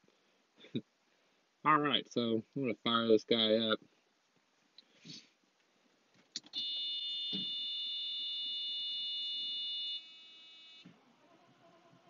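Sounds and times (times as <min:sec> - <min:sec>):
dashboard warning buzzer: 0:06.6 - 0:10.9.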